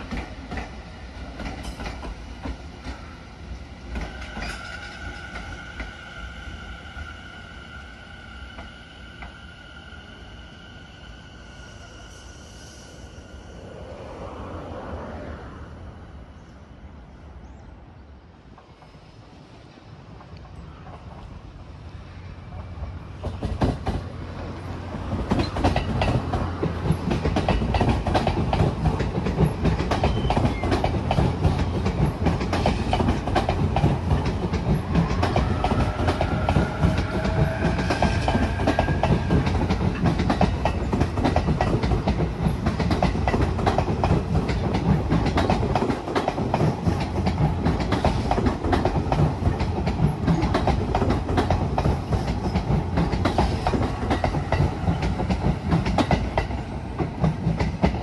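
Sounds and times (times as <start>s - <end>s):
train wheels clacking over rail joints: 0.0s - 3.0s, 23.2s - 24.1s, 24.9s - 58.0s.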